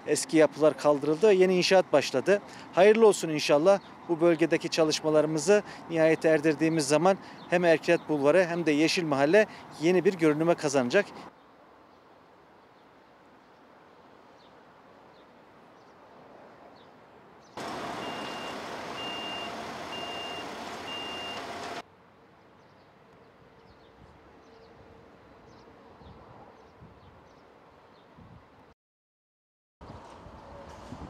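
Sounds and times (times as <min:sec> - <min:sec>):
reversing alarm beeping: 0:17.6 - 0:21.8
truck engine running: 0:17.6 - 0:21.8.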